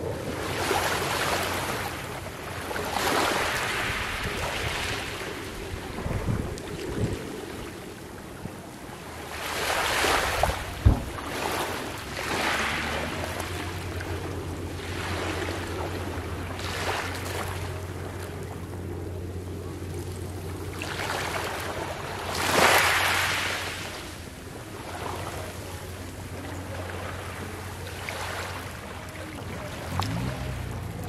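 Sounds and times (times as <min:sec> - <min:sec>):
small waves lapping on pebbles: 0:00.3 - 0:18.6, 0:19.9 - 0:25.8
short low thump: 0:10.8 - 0:11.2.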